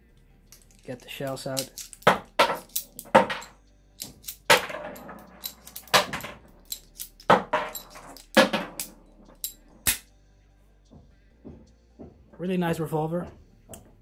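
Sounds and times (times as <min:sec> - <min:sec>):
metallic clicks of revolver shells: 0:00.1 - 0:10.0.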